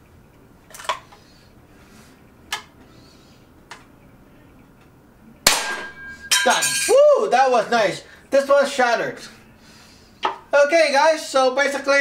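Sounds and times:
air rifle shot with ringing: 0:05.4 - 0:06.4.

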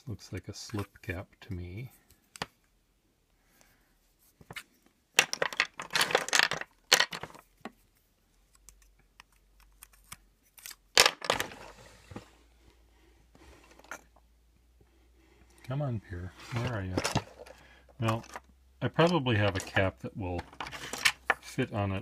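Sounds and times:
pen parts clattering in drawer: 0:05.2 - 0:07.4.

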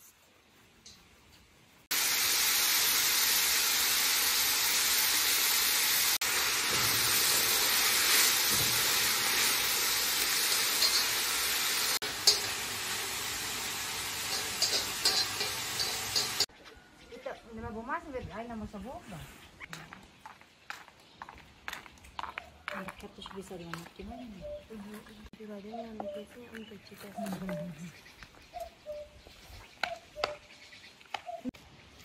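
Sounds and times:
onions sizzling in oil: 0:01.9 - 0:16.5.

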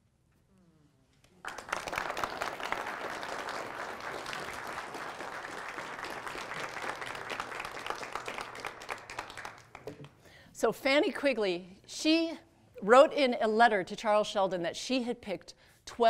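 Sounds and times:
small audience applauding: 0:01.2 - 0:10.2.

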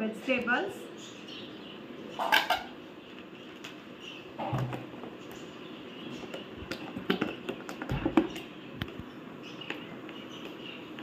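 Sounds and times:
plastic containers clicking and knocking: 0:06.2 - 0:09.0.

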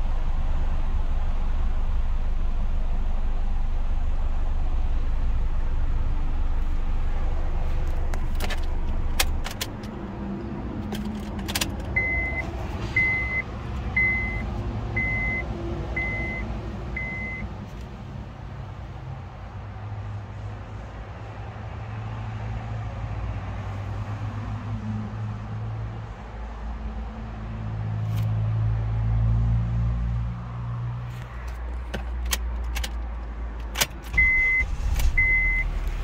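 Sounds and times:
car engine idling: 0:00.0 - 0:15.4, 0:31.6 - 0:36.0
ignition key clicks: 0:07.9 - 0:10.0, 0:32.1 - 0:35.6.

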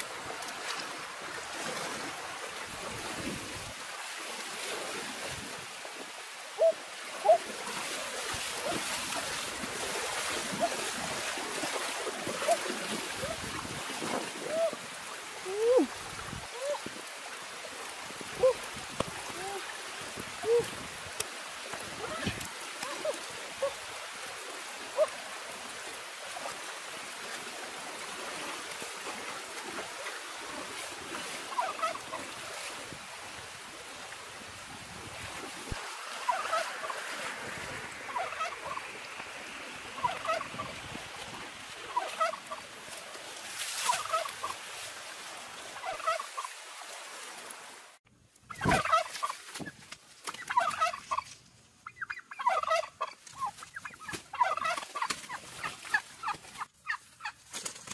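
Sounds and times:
turkey clucking: 0:31.5 - 0:32.0, 0:36.3 - 0:36.9, 0:38.1 - 0:38.9, 0:40.0 - 0:40.7, 0:41.9 - 0:42.4, 0:43.9 - 0:44.3, 0:45.8 - 0:46.5, 0:48.5 - 0:49.4, 0:50.4 - 0:55.2, 0:55.9 - 0:57.4.

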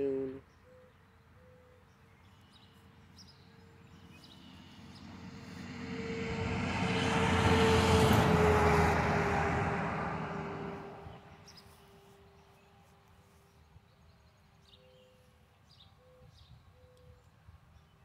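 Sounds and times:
vehicle driving past: 0:03.7 - 0:11.8.

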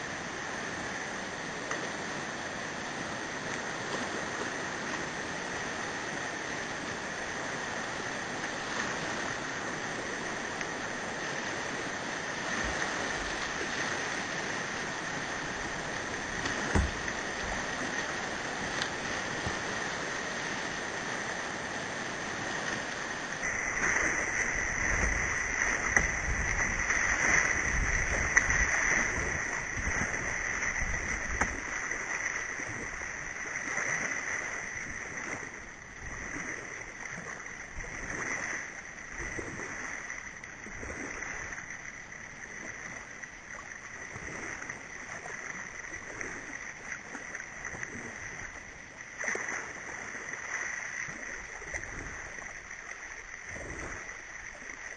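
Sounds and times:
rushing whitewater roar: 0:00.0 - 0:39.8.

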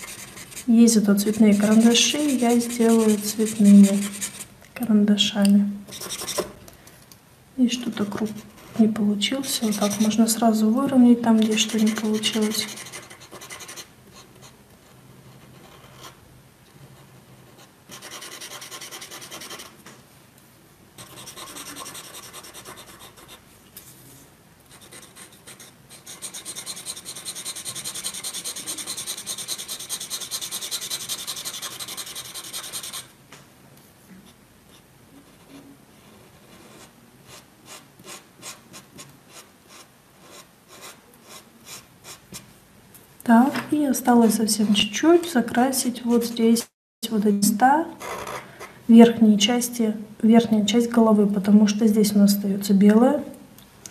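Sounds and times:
marker scratching on paper: 0:00.0 - 0:04.5, 0:05.9 - 0:06.5, 0:09.4 - 0:10.3, 0:11.4 - 0:14.5, 0:17.4 - 0:19.8, 0:21.0 - 0:23.4, 0:24.7 - 0:33.1.

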